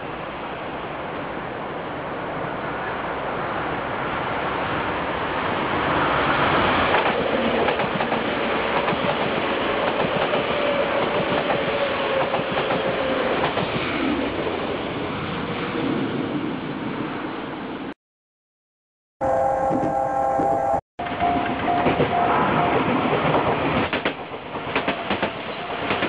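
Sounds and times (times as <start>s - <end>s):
train rushing past: 0.2s - 18.0s, 19.2s - 26.0s
train wheels clattering over rail joints: 6.9s - 13.8s, 22.8s - 26.0s.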